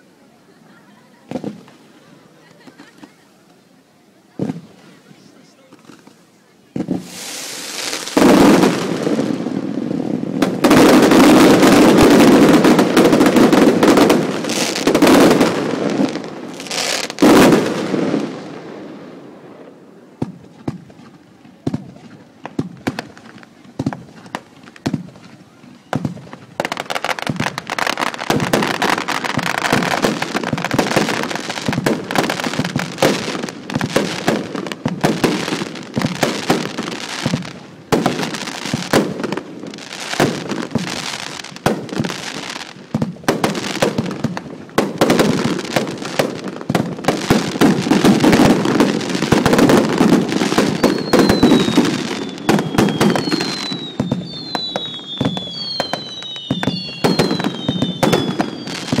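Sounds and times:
fireworks bangs and crackling: 1.0 - 3.2, 4.3 - 59.0
falling firework whistles: 6.8 - 8.8, 47.5 - 59.0.

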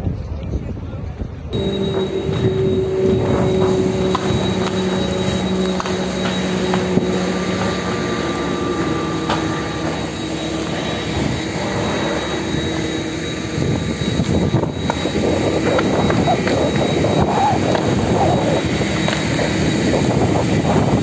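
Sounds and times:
mechanical hum: 1.4 - 21.0
fire roaring: 1.6 - 21.0
fire popping: 2.4 - 11.1.

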